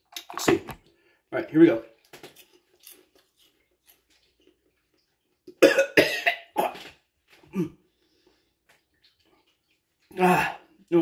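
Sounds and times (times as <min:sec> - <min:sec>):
man coughing hard: 0:05.6 - 0:06.8.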